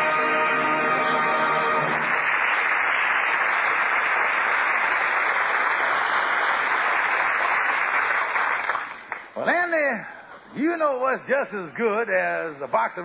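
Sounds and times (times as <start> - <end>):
orchestra music: 0.0 - 2.2
audience applauding: 0.0 - 9.4.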